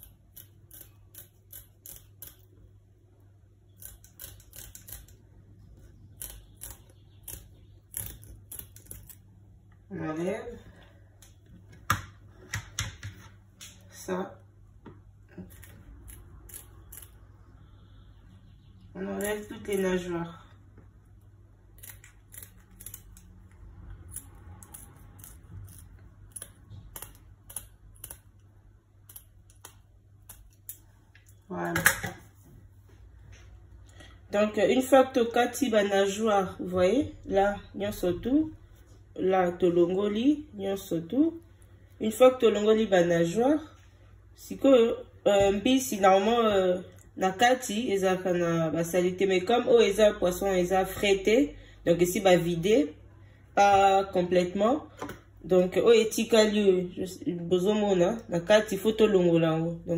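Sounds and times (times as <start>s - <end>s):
scissors snipping: 0.0s - 2.5s, 3.8s - 5.2s
low steady hum: 0.0s - 59.9s.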